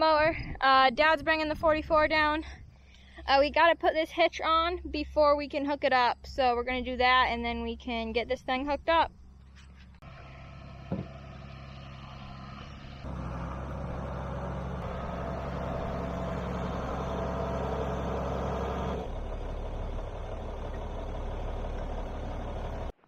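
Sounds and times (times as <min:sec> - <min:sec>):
tractor engine idling: 0:09.4 - 0:23.0.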